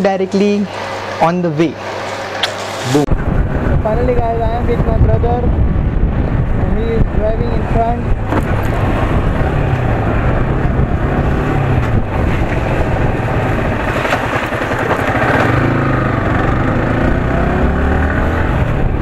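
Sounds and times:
wind and road noise: 0:00.0 - 0:19.0
motorcycle engine running: 0:03.2 - 0:19.0.

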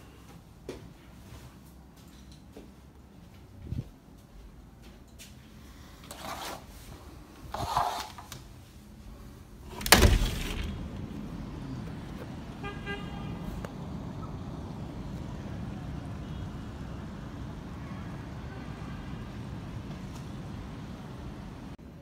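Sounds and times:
city traffic rumble: 0:08.4 - 0:22.0
car horn honking: 0:12.6 - 0:13.6.

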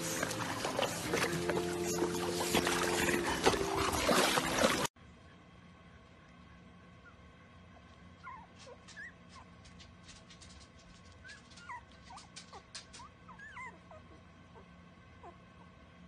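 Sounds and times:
puppies squeaking and whimpering: 0:00.0 - 0:03.8, 0:08.2 - 0:09.5, 0:11.2 - 0:15.4.

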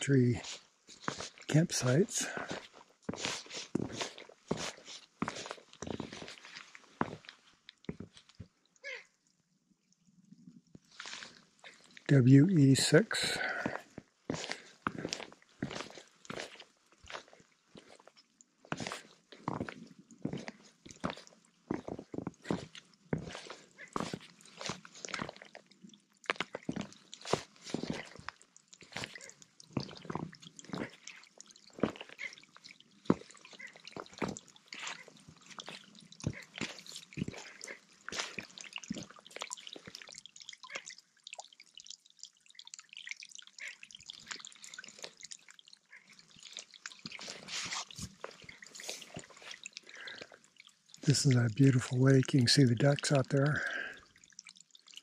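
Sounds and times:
water dripping into lake: 0:00.0 - 0:55.0
footsteps crunching in snow: 0:02.4 - 0:07.3, 0:26.7 - 0:28.2.

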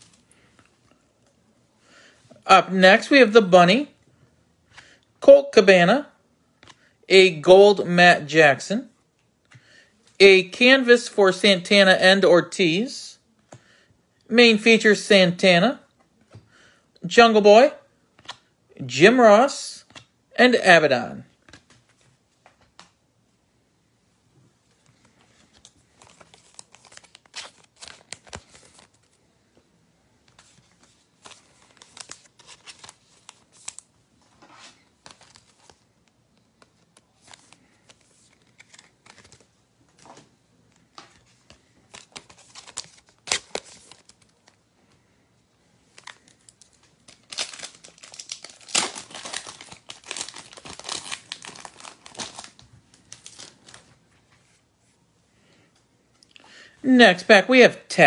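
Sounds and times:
foil wrapper crinkling: 0:41.9 - 0:44.6, 0:45.9 - 0:53.9
foil wrapper tearing: 0:46.0 - 0:53.8.

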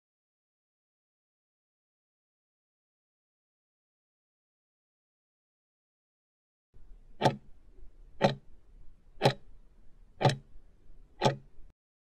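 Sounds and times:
clock ticks: 0:07.1 - 0:07.6, 0:08.2 - 0:08.5, 0:09.2 - 0:09.5, 0:10.2 - 0:10.5, 0:11.2 - 0:11.6.

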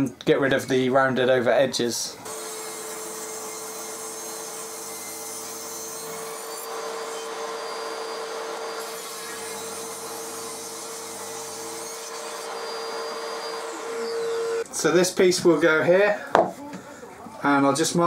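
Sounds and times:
saw motor whine: 0:02.2 - 0:14.6
table saw ripping wood: 0:02.2 - 0:14.7.

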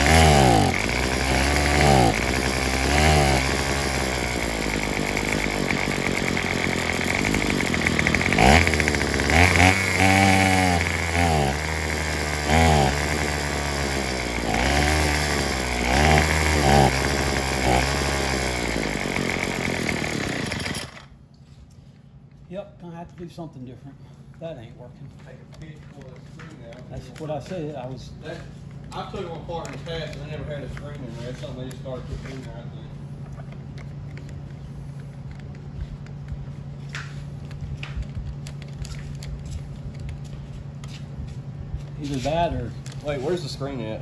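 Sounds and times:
string trimmer engine revving: 0:00.0 - 0:21.2, 0:41.8 - 0:44.0.

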